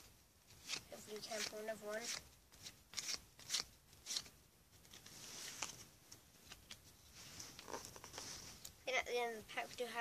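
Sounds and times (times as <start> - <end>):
trading cards rustling: 0.5 - 8.8.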